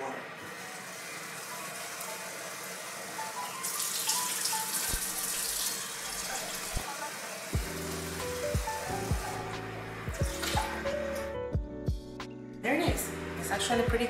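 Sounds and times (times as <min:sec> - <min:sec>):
faucet water splashing into pitcher: 0:00.7 - 0:11.0.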